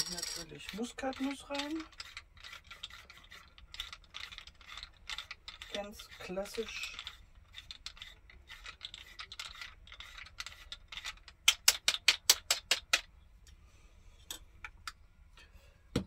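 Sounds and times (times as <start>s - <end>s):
ratcheting clicks: 0.0s - 5.8s.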